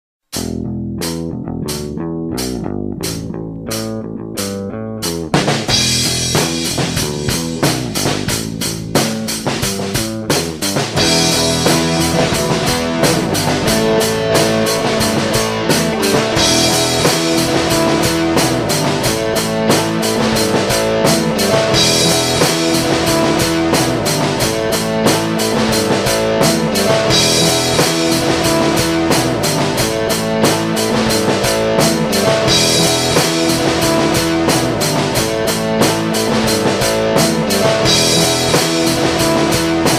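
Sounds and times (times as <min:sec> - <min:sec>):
rock music: 0:00.2 - 0:39.9.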